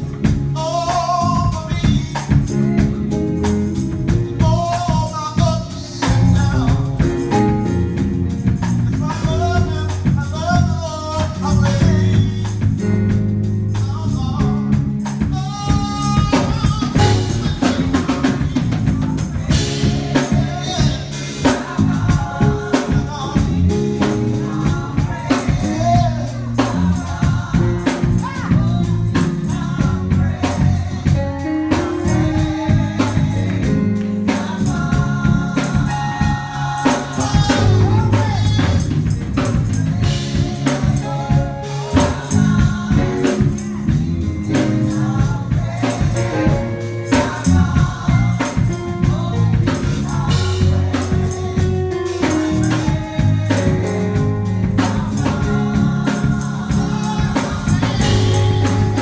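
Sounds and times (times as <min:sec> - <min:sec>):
gospel band playing: 0:00.0 - 0:59.0
tambourine: 0:00.0 - 0:59.0
person singing: 0:13.8 - 0:59.0.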